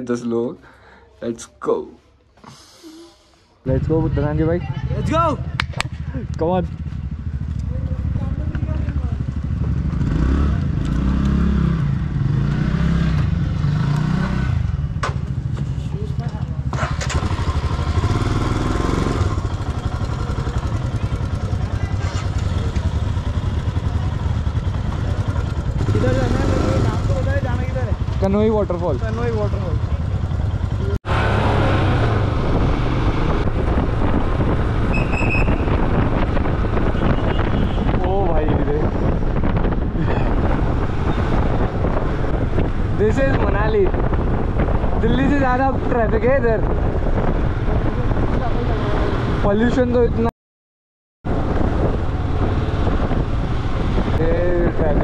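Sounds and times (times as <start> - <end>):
motorcycle engine revving: 3.7 - 46.0, 51.3 - 55.0
wind rushing over microphone: 30.4 - 50.3, 51.2 - 55.0.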